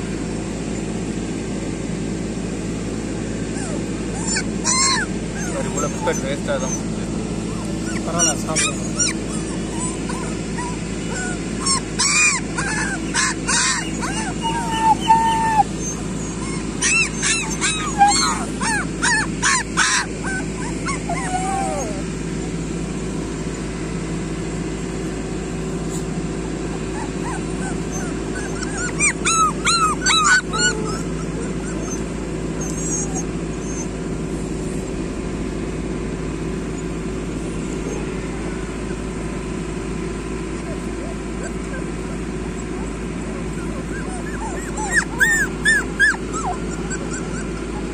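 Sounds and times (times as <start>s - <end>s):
steady low hum: 0.0s - 47.9s
puppies yelping and whimpering: 2.0s - 23.8s, 25.4s - 35.0s, 36.6s - 47.9s.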